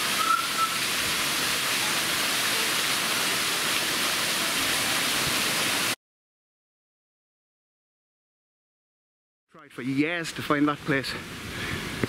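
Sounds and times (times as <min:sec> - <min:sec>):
waterfall splashing into pool: 0:00.0 - 0:06.0.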